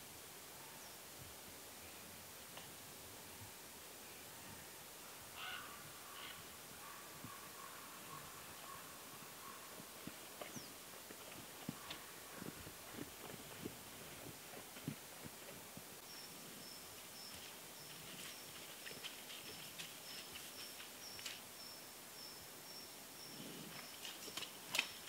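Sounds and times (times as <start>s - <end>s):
bear footsteps rustling undergrowth: 8.6s - 21.7s, 23.7s - 25.0s
twigs snapping: 24.0s - 25.0s.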